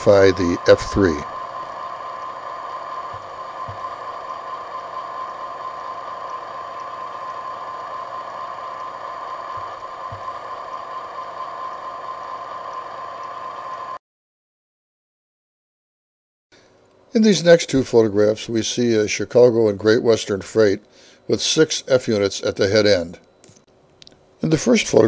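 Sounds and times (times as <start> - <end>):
constant high tone: 0.0 - 14.0
whirring hum with hiss: 0.0 - 14.0, 16.6 - 25.0.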